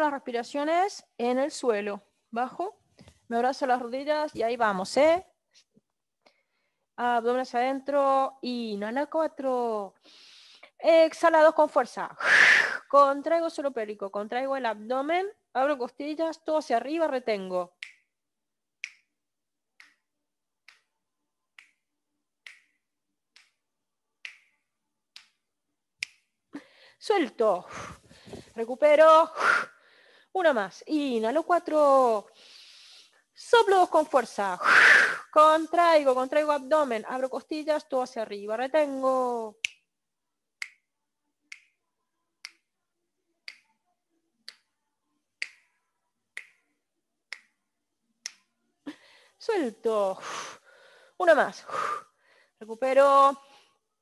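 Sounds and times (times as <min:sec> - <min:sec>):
finger snaps: 0:17.8 - 0:18.1, 0:18.8 - 0:19.2, 0:19.8 - 0:20.9, 0:21.5 - 0:23.6, 0:24.2 - 0:25.4, 0:26.0 - 0:26.3, 0:39.6 - 0:39.9, 0:40.6 - 0:40.9, 0:41.5 - 0:41.8, 0:42.4 - 0:42.7, 0:43.4 - 0:43.8, 0:44.4 - 0:44.7, 0:45.4 - 0:46.7, 0:47.3 - 0:47.6, 0:48.2 - 0:48.5.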